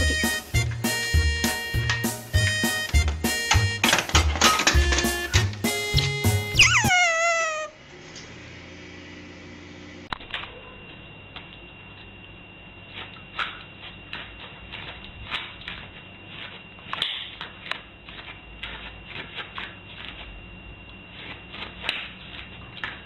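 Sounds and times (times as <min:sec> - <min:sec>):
puppy claws scratching on floor: 0:12.9 - 0:23.0.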